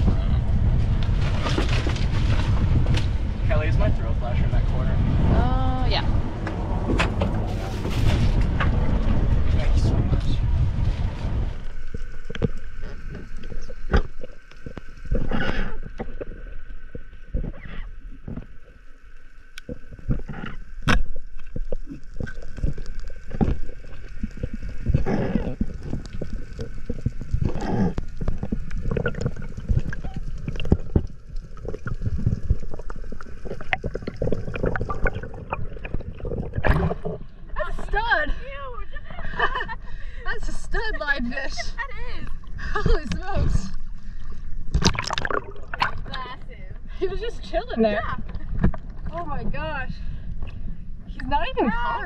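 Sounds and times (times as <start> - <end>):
low rumble: 0.0 - 52.0
gurgling bubbles underwater: 8.7 - 37.6, 42.2 - 46.2.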